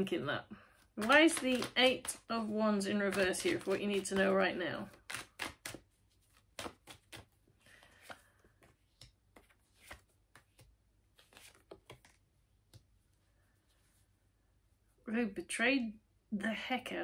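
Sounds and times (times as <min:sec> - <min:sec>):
cards clicking and tapping: 0:01.0 - 0:02.3, 0:02.9 - 0:12.9.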